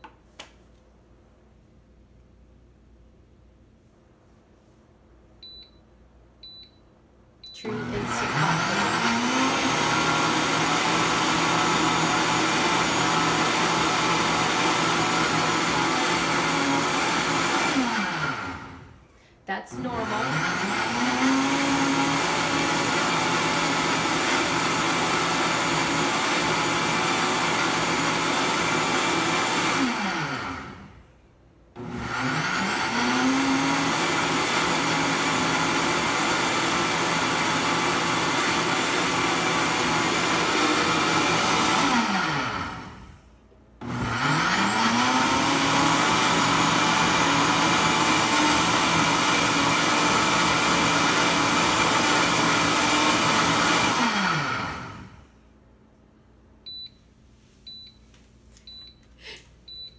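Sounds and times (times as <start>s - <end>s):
blender motor running: 7.6s - 19.0s, 19.7s - 31.0s, 31.8s - 43.2s, 43.8s - 55.2s.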